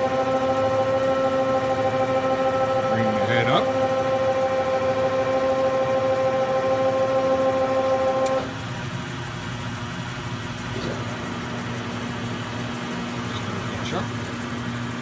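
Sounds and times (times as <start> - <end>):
grinder wheel whining: 0.0 - 8.6
quiet machine hum: 0.0 - 8.6.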